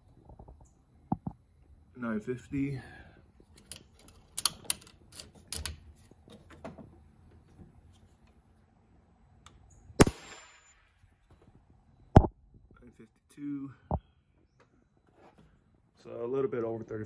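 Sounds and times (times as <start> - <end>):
air rifle shot: 10.0 - 10.8.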